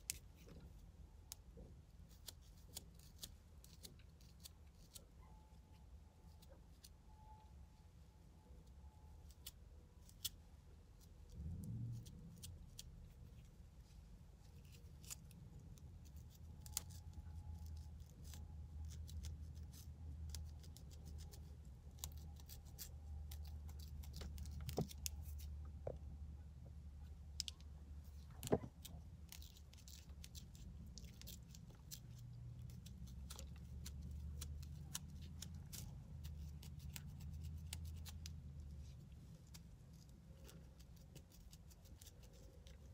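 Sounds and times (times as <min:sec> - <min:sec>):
low steady car hum: 0:07.2 - 0:41.3.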